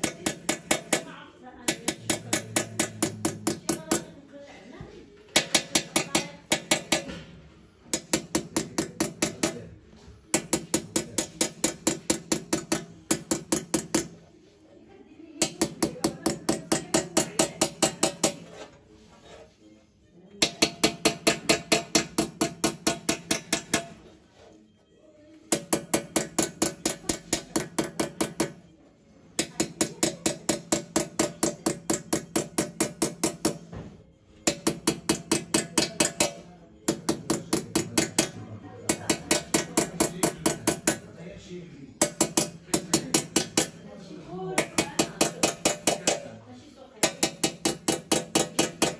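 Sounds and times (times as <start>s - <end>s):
hammer tapping punch into brass: 1.7s - 4.1s, 10.3s - 14.2s, 20.4s - 24.1s, 25.5s - 28.6s, 29.4s - 33.8s, 34.4s - 41.1s, 42.0s - 43.8s, 44.6s - 46.3s, 47.0s - 48.9s.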